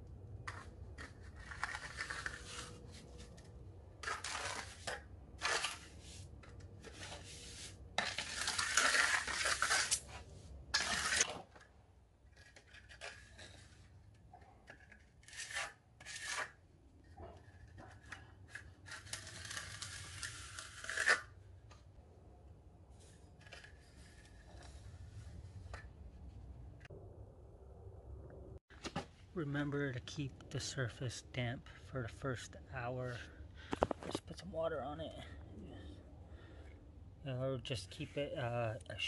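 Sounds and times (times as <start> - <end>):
trowel scraping wet mortar: 0.5 - 3.3, 4.0 - 11.3, 14.6 - 16.6.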